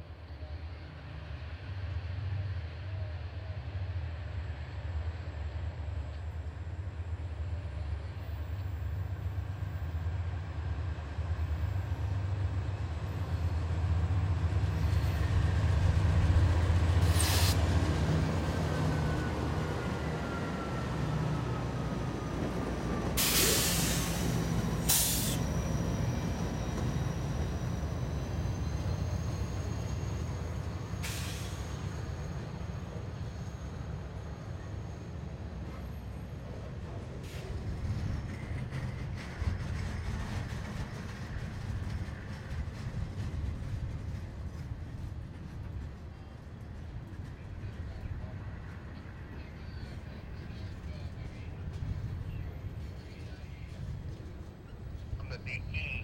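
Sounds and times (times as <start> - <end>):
diesel locomotives rumbling past: 0.0 - 56.0
air brake hisses: 17.0 - 17.6, 23.2 - 25.5, 31.0 - 31.7.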